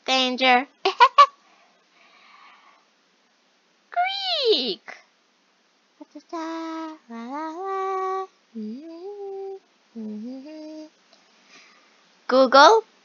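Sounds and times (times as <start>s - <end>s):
person humming a tune: 6.0s - 10.9s.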